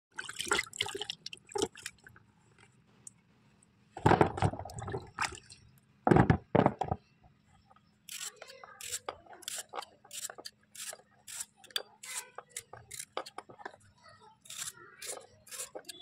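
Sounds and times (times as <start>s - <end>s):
potatoes washed in water: 0.1s - 2.2s, 14.4s - 16.0s.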